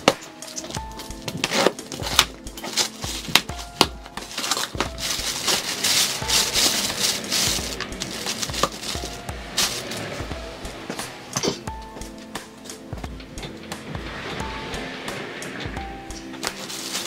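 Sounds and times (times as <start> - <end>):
plastic bag crinkling: 0.0 - 10.2, 16.4 - 17.0
cardboard flaps knocking and scraping: 0.0 - 12.2.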